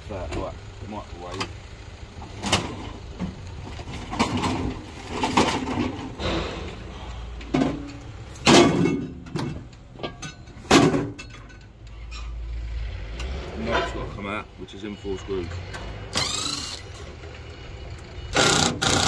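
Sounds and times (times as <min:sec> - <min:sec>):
metal scrap clattering: 0:03.7 - 0:12.4, 0:13.6 - 0:14.2
loud metallic bangs: 0:05.6 - 0:09.2.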